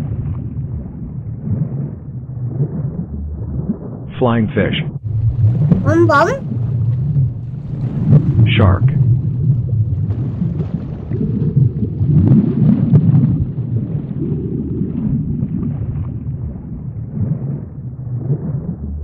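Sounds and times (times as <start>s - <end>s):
underwater rumble of moving water: 9.1s - 14.9s.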